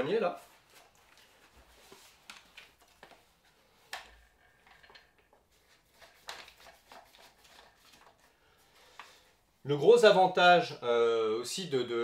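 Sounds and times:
rifle handling clicks and knocks: 0:01.9 - 0:03.3, 0:03.9 - 0:06.7.

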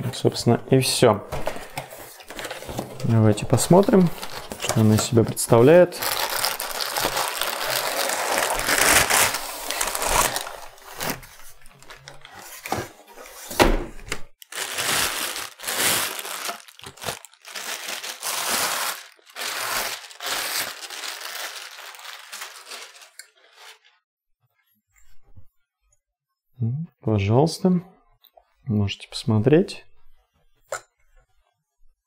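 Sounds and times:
packaging crinkling: 0:03.7 - 0:12.8, 0:14.4 - 0:23.9.

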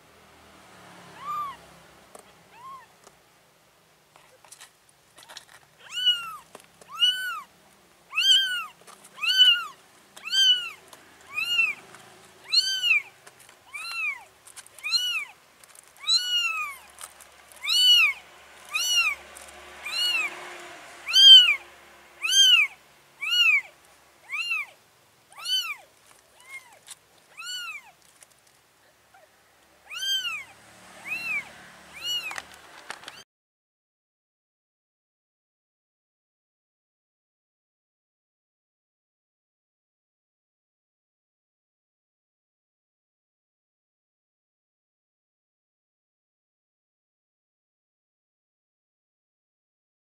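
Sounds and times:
kitten meowing: 0:01.1 - 0:01.6, 0:02.5 - 0:03.0, 0:05.2 - 0:07.5, 0:08.1 - 0:15.4, 0:16.0 - 0:20.4, 0:21.0 - 0:28.0, 0:29.1 - 0:33.2.

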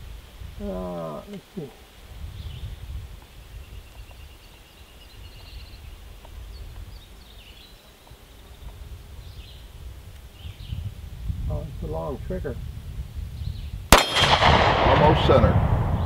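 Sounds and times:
faint bird chirps: 0:00.6 - 0:10.9
low rumble: 0:14.1 - 0:16.0.

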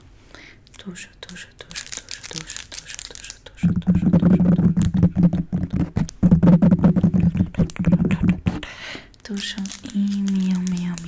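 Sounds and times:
crackly clicks: 0:00.6 - 0:06.2, 0:09.1 - 0:11.0.

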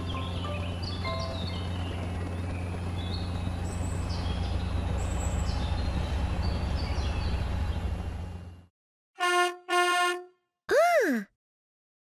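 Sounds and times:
birds chirping: 0:00.0 - 0:08.6
drone propeller hum: 0:00.0 - 0:08.6.

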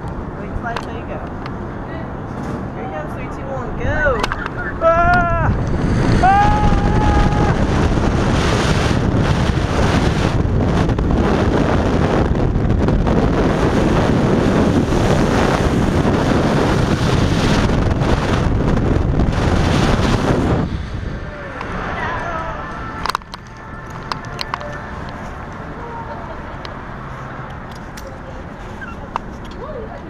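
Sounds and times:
strong wind on microphone: 0:00.0 - 0:27.7
person shouting: 0:04.7 - 0:05.6, 0:06.2 - 0:07.7.

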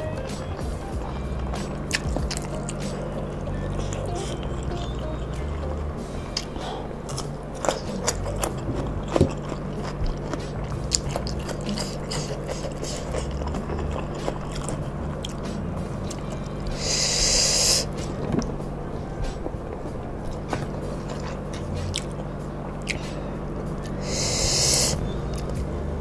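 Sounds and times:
chewing crunchy vegetable: 0:00.0 - 0:26.0
low hum: 0:00.0 - 0:26.0
loud hiss burst: 0:16.8 - 0:18.0, 0:24.0 - 0:25.0.

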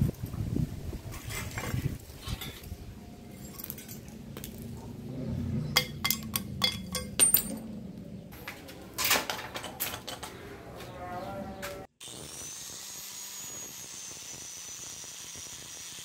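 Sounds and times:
metal parts clinking: 0:02.3 - 0:04.6, 0:05.8 - 0:07.8.

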